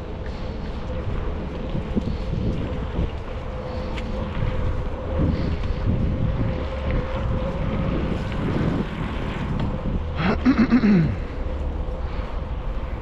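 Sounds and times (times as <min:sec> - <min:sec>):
bicycle tyre rumble on asphalt: 0:00.0 - 0:13.0
wind buffeting microphone: 0:00.0 - 0:13.0.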